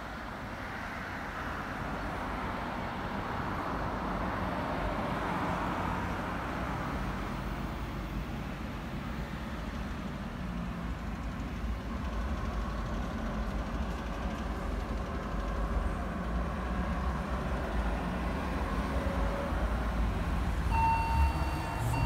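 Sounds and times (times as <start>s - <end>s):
road traffic rumble: 0.0s - 22.0s
level crossing warning beeps: 20.7s - 22.0s.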